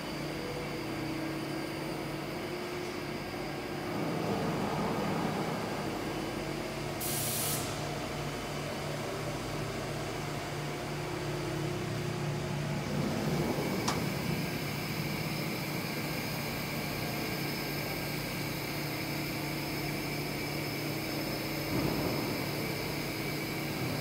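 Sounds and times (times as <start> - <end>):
machine hum with low tones: 0.0 - 7.1, 7.7 - 24.0
short burst of hiss: 7.0 - 7.8.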